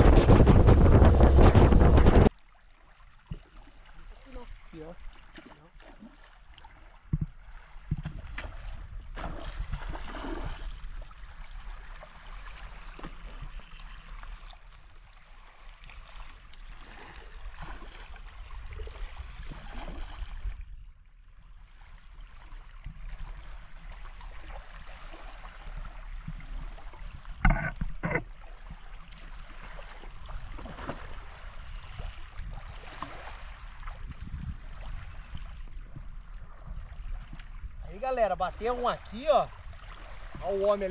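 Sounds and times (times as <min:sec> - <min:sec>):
low rumble: 0:00.0 - 0:02.3.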